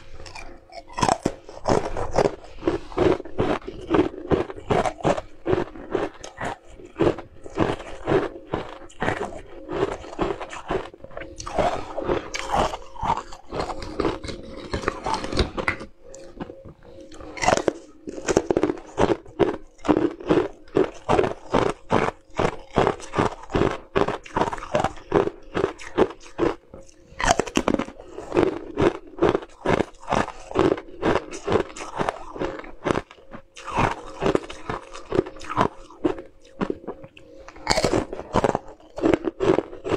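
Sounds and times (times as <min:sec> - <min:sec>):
crunching bites of ice: 0:37.6 - 0:39.9.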